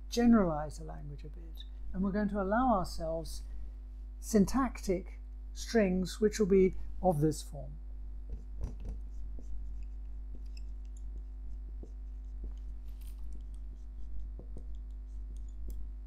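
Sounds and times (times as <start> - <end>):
low electrical hum: 0.0 - 16.0
taps and clicks of writing: 8.2 - 16.0.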